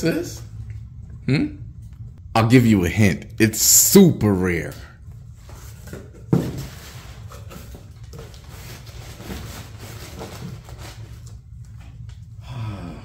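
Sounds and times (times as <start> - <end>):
packing paper rustling: 6.4 - 11.4.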